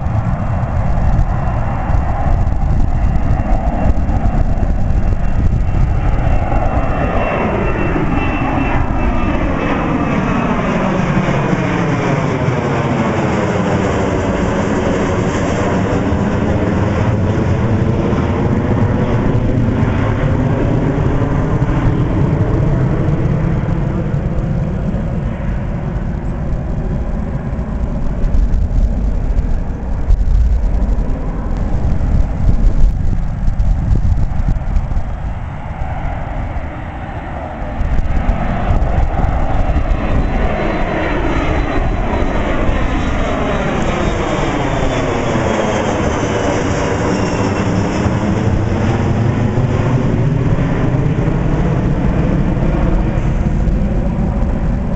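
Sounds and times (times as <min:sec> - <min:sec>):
jet engines roaring overhead: 0:00.0 - 0:54.9.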